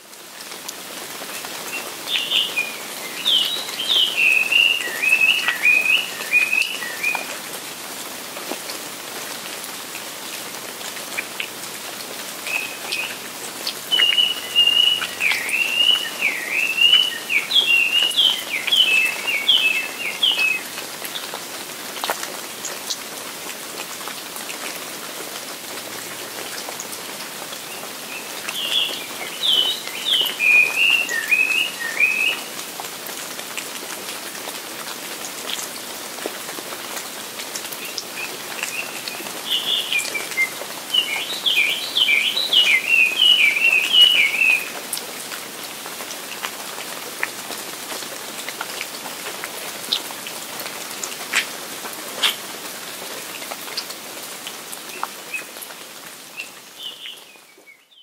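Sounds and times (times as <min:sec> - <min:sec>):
rain falling: 0:00.0 - 0:58.0
songbird singing: 0:01.3 - 0:07.4, 0:12.4 - 0:21.3, 0:27.6 - 0:32.5, 0:37.7 - 0:44.8, 0:56.3 - 0:58.0.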